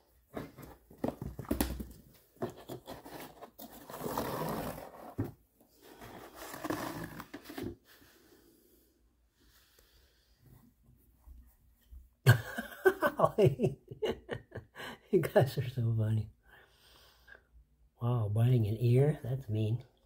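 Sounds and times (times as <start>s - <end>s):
cardboard rustling: 0.2s - 7.8s.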